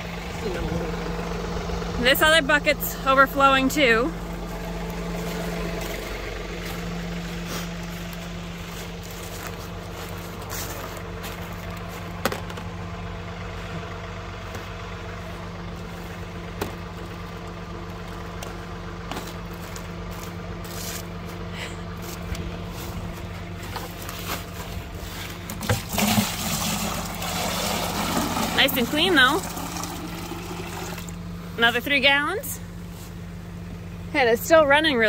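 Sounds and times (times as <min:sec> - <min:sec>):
tractor engine idling: 0:00.0 - 0:35.0
plastic bucket clicks and knocks: 0:25.5 - 0:26.5.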